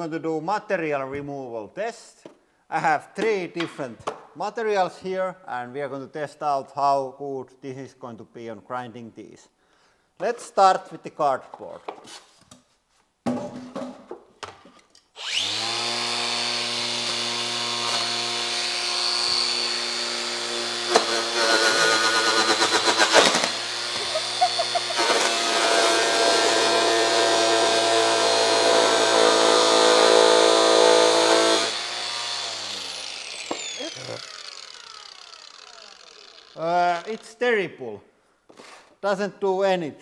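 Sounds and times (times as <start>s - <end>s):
angle grinder whining: 15.2s - 37.4s
grinder disc against cardboard: 20.6s - 27.1s, 31.6s - 37.4s.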